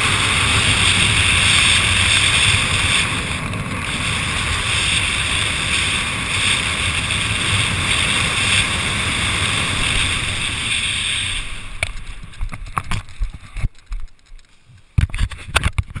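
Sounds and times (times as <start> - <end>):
wind rushing over microphone: 0.0 - 13.8
knocks and rustles of gear: 11.8 - 16.0.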